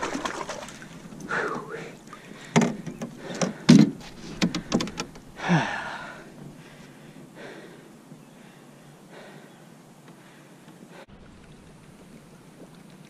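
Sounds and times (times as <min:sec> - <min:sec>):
knocks and thumps in a boat: 0:02.4 - 0:05.3.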